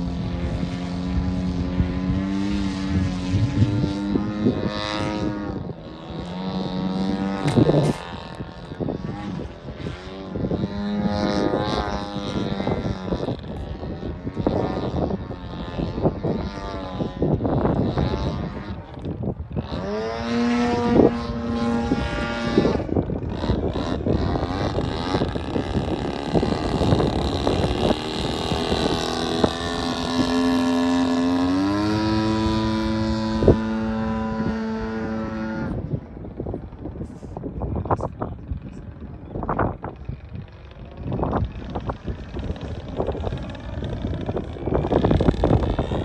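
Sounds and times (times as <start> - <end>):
model plane engine and propeller: 0.0 - 46.0.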